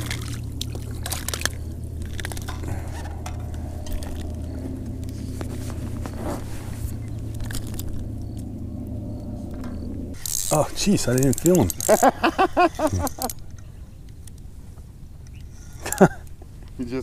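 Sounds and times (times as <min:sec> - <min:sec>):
steady low hum: 0:00.0 - 0:16.7
fishing reel cranking: 0:07.3 - 0:08.0, 0:10.2 - 0:12.1, 0:12.7 - 0:13.5.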